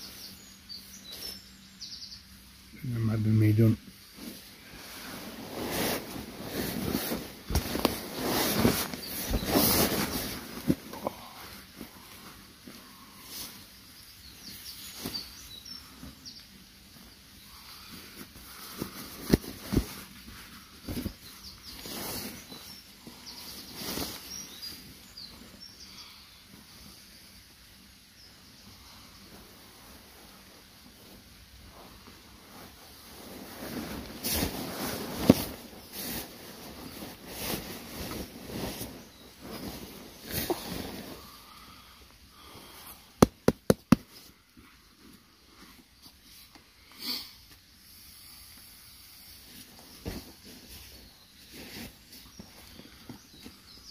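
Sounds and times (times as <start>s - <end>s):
faint bird chirps: 0.0s - 3.8s, 8.2s - 19.3s, 20.6s - 29.9s, 46.8s - 53.9s
nylon fabric rustling: 4.2s - 10.9s, 30.1s - 41.2s
sharp knocks: 43.2s - 44.0s.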